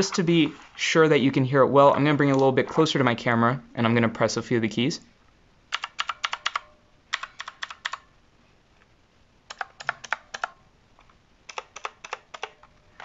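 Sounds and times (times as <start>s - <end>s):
mechanical keyboard clicking: 5.7s - 8.1s, 9.5s - 10.6s, 11.5s - 12.8s.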